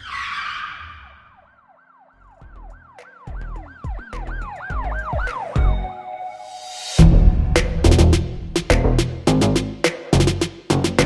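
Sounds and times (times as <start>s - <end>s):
siren-like yelp: 0.0s - 6.5s
deep bass hits: 7.0s - 11.0s.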